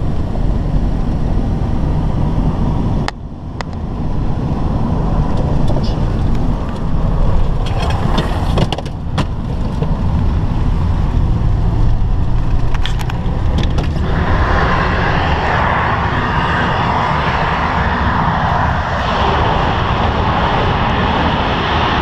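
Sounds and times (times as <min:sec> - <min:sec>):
road and engine rumble: 0:00.0 - 0:22.0
loud rushing roar: 0:09.9 - 0:22.0.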